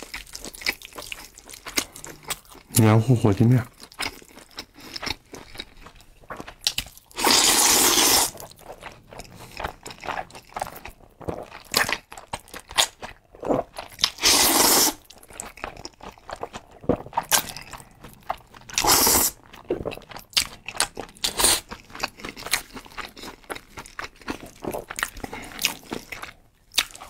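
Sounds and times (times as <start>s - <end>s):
wet chewing: 0.0s - 2.9s, 3.6s - 27.0s
person slurping noodles: 7.2s - 8.4s, 14.2s - 15.0s, 18.8s - 19.4s.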